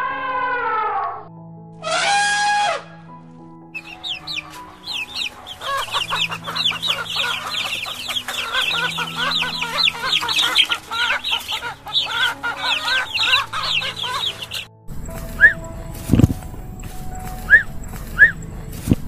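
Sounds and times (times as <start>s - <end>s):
soft background music: 0.0s - 19.0s
birds chirping: 3.8s - 19.0s.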